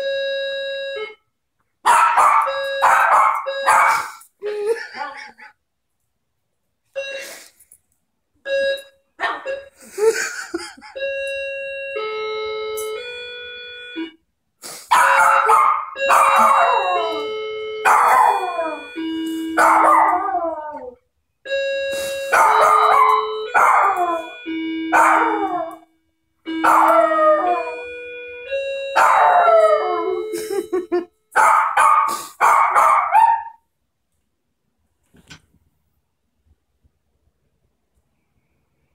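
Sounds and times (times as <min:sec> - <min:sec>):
doorbell chime tune: 0:00.0 - 0:01.2, 0:02.3 - 0:04.2, 0:07.0 - 0:07.4, 0:08.5 - 0:09.8, 0:10.8 - 0:14.2, 0:16.0 - 0:20.2, 0:21.5 - 0:31.0.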